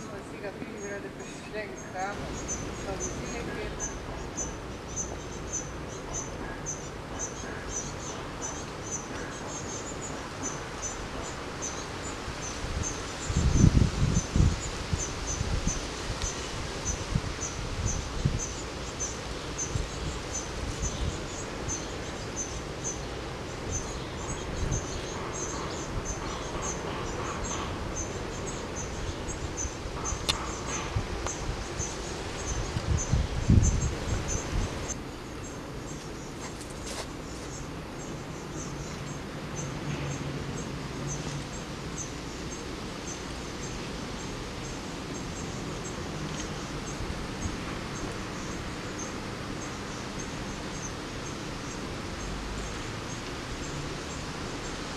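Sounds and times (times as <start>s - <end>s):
wind noise on microphone: 8.8s - 35.1s, 41.5s - 54.9s.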